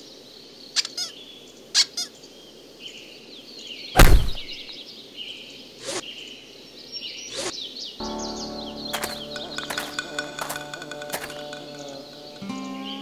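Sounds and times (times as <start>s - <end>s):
loud thud: 4.0s - 4.6s
high chirping: 7.0s - 13.0s.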